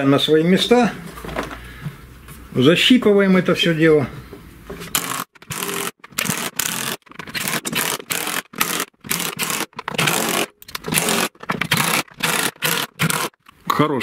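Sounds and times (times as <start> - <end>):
impact driver bursts: 4.9 - 13.4.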